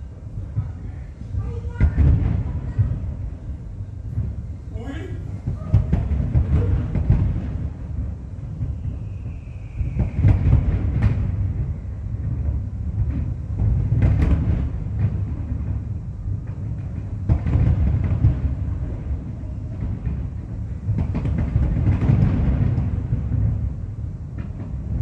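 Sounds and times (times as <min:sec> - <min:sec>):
fireworks rolling rumble: 0:00.0 - 0:25.0
firework bangs: 0:00.4 - 0:25.0.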